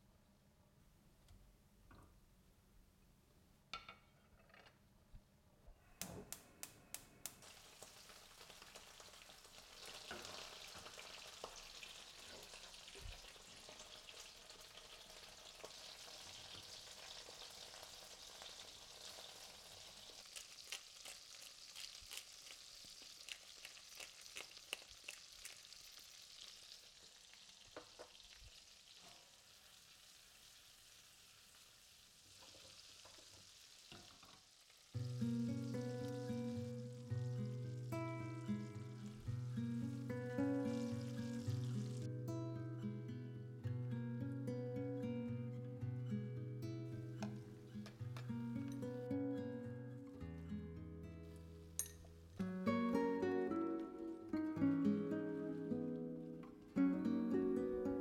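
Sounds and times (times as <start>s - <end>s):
shrimp sizzling in oil: 6.9s - 42.1s.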